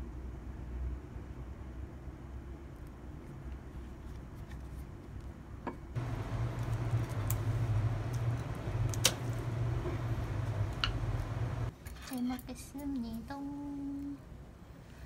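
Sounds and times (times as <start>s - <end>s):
steady low hum: 5.3s - 11.7s.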